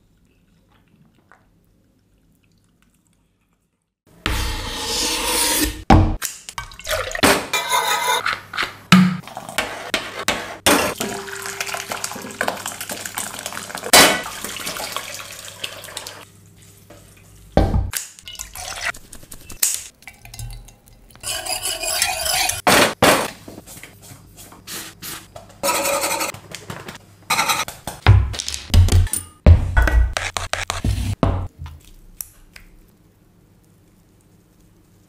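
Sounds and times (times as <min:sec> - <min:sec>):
pots and utensils clinking: 0:06.6 - 0:12.9
liquid pouring into pot: 0:11.0 - 0:16.2.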